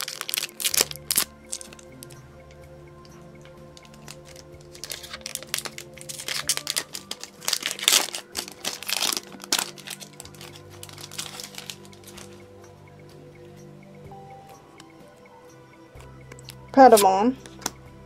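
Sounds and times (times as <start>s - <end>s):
foil wrapper crinkling and tearing: 0.0s - 1.8s, 3.8s - 12.4s
soft background music: 0.0s - 18.0s.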